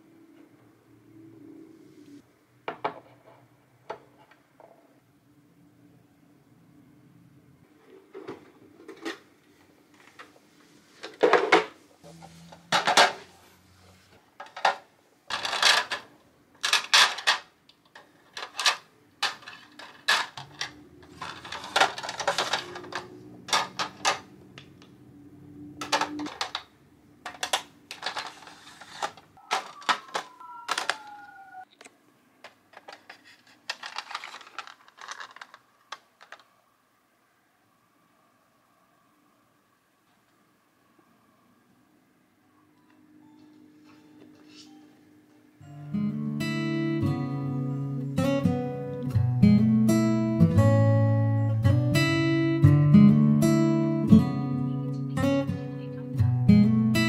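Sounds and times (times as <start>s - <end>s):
plastic drawers clicking and clacking: 12.6s - 13.3s, 14.4s - 24.9s, 25.8s - 31.2s, 32.4s - 36.5s.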